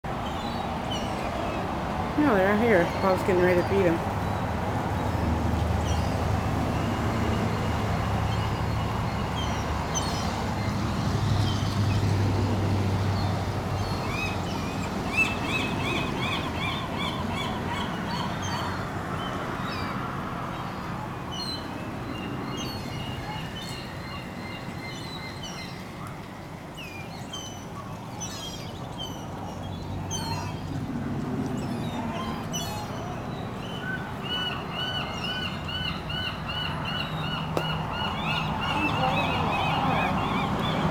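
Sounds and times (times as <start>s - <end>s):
gulls calling: 31.5s - 40.9s.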